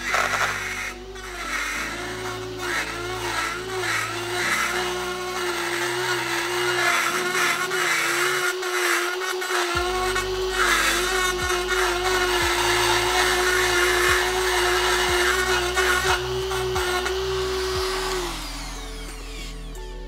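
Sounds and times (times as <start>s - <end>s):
rotary tool grinding metal: 0.0s - 19.9s.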